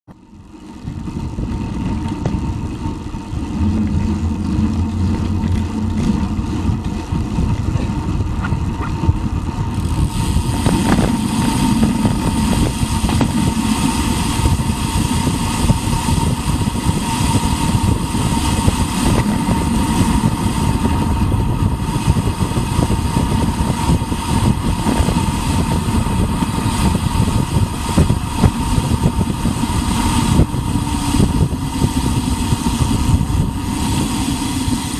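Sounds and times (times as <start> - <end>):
faint steady whine: 0.1 - 34.9
tyre noise on asphalt: 0.1 - 34.9
wind buffeting microphone: 0.4 - 34.9.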